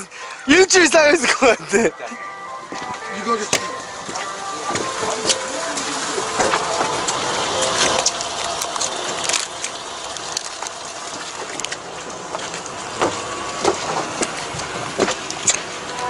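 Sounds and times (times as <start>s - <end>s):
footsteps on deck: 2.6s - 8.0s.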